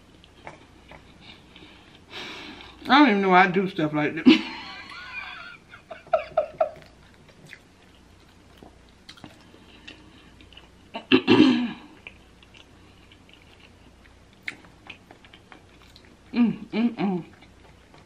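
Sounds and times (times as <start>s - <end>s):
person chewing: 0.0s - 2.9s, 6.6s - 11.1s, 11.8s - 18.0s
person humming: 16.3s - 17.4s.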